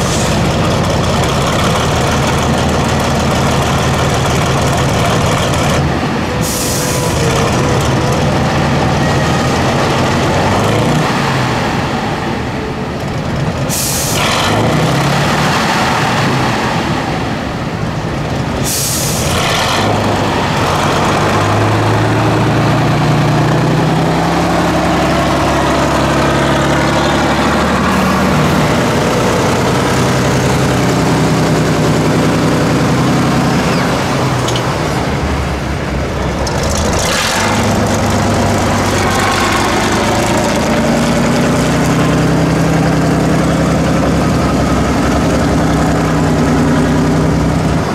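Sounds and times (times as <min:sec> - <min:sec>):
truck diesel engine revving: 0:00.0 - 0:47.9
air brake hisses: 0:06.4 - 0:07.1, 0:13.7 - 0:14.2, 0:18.6 - 0:19.3.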